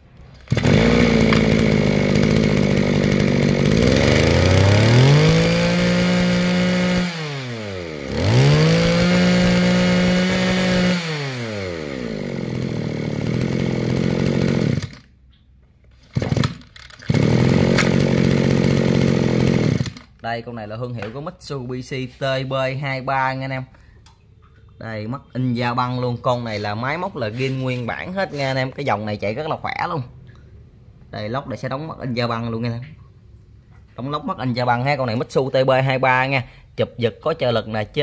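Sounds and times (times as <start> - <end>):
pull cord starting: 0.2 - 15.1, 15.9 - 20.2
brush-cutter engine revving: 0.4 - 15.1, 16.0 - 20.1.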